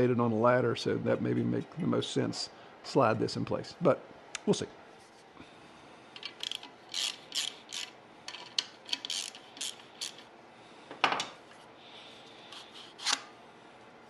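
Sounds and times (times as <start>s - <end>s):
socket ratchet clicking: 6.2s - 10.3s.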